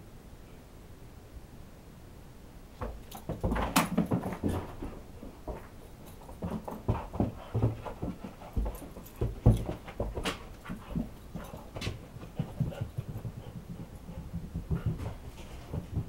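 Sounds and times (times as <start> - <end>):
thumps on carpeted stairs: 2.8 - 5.7, 6.3 - 16.0
dog panting: 6.0 - 16.0.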